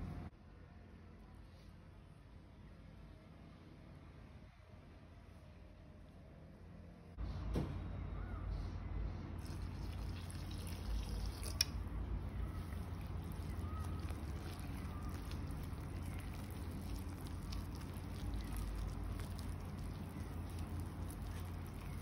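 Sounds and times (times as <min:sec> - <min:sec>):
steady low hum: 0:00.0 - 0:22.0
hand mixing wet dough: 0:09.4 - 0:22.0
water pouring into flour: 0:09.4 - 0:22.0.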